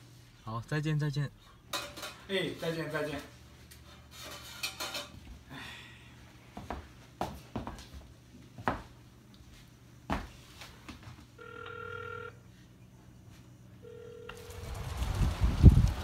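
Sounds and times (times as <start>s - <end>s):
telephone ringing tone: 11.4s - 12.4s, 13.8s - 14.7s.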